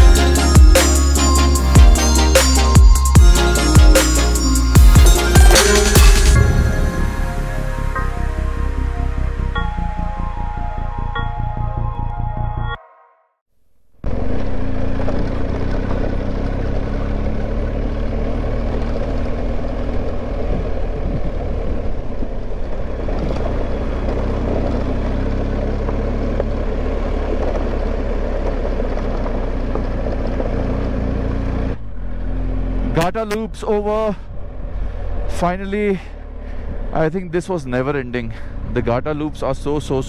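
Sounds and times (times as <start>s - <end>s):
motorcycle engine running: 0.0s - 7.8s, 14.0s - 40.0s.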